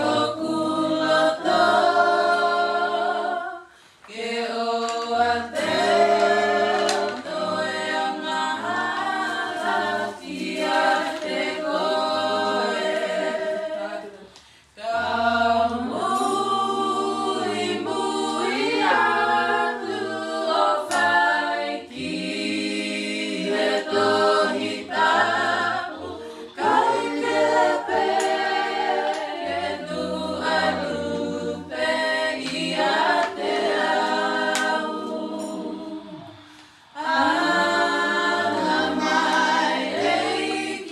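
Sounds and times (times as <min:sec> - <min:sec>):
group singing a cappella in harmony: 0:00.0 - 0:40.9.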